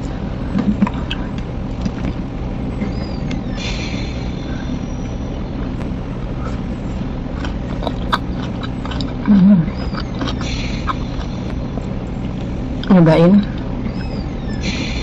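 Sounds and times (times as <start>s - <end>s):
low rumble: 0.0s - 15.0s
person chewing: 0.6s - 2.2s, 5.8s - 12.6s
hissing rustle: 10.0s - 12.6s.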